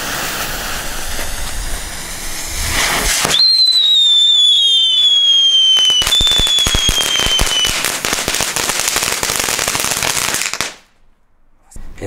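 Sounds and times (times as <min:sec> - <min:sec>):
hiss of spraying sparks: 0:00.0 - 0:03.5
firework crackling pops: 0:00.0 - 0:11.0
whistle dropping in pitch: 0:03.3 - 0:07.8.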